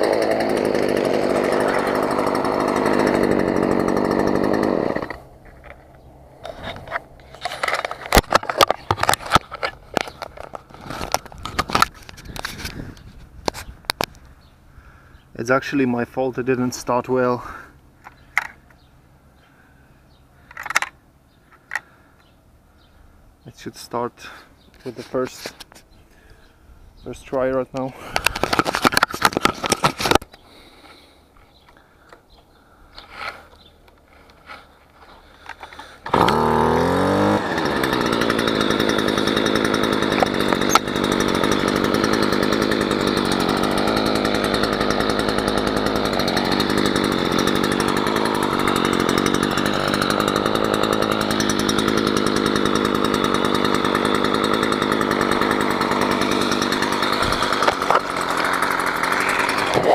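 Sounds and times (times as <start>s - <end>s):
brush cutter engine starting: 0.0s - 14.4s, 27.2s - 31.0s, 33.0s - 59.9s.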